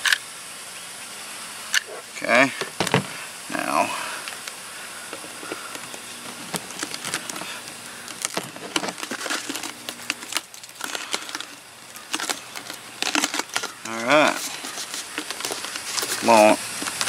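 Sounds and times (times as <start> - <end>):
canister clicks and scrapes: 5.1 - 17.0.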